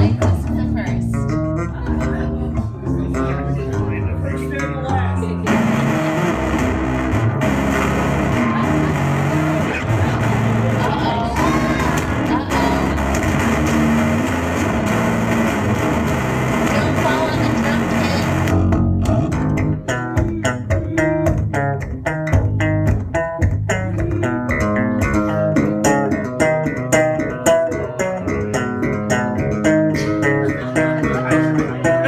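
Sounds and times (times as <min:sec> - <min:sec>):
distorted electric guitar: 0:00.0 - 0:32.0
rapid picked guitar notes: 0:00.0 - 0:32.0.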